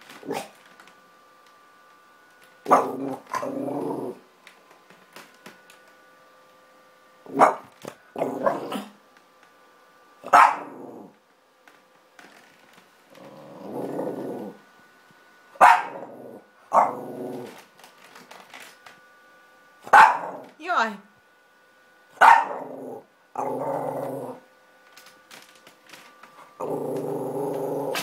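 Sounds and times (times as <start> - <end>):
dog barking: 2.7 - 3.0, 7.3 - 7.7, 10.3 - 10.8, 15.6 - 16.1, 16.7 - 17.0, 19.9 - 20.4, 22.2 - 22.7
dog growling: 2.7 - 4.2, 8.2 - 9.0, 10.5 - 11.2, 13.1 - 14.6, 15.8 - 17.6, 22.4 - 24.5, 26.6 - 28.0.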